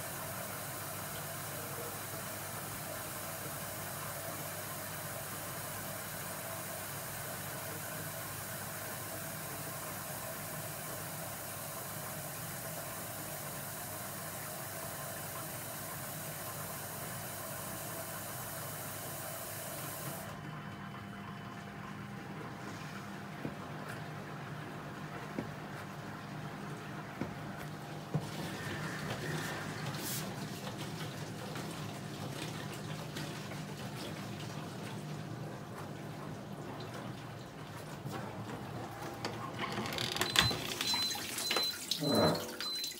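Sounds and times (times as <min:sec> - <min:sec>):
dishwasher humming: 0:00.0 - 0:42.9
dishwasher water spraying: 0:25.1 - 0:42.9.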